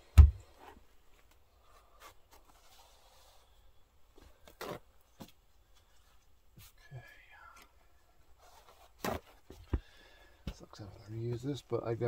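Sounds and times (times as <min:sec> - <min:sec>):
heavy thump on bench: 0:00.2 - 0:00.4
faint scraping and rubbing: 0:01.6 - 0:04.9, 0:05.6 - 0:09.6.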